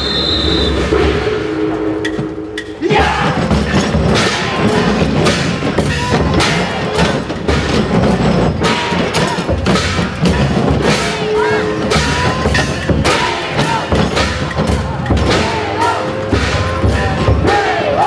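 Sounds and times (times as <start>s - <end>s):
festival drumming: 0.0s - 18.0s
people shouting calls: 2.8s - 5.0s, 8.6s - 18.0s.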